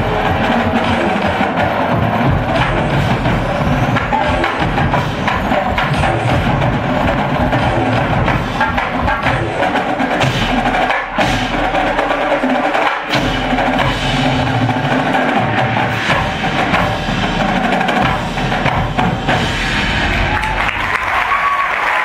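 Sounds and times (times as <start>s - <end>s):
mallet keyboards: 0.0s - 19.5s
marching ensemble playing: 0.0s - 21.3s
drums: 0.0s - 22.0s.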